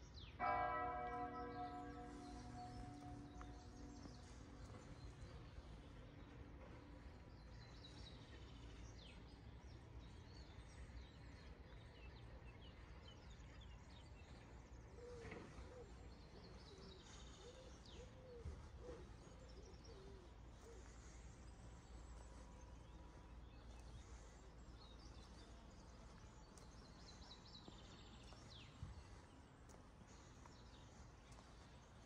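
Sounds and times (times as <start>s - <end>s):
small birds chirping: 1.1s - 32.0s.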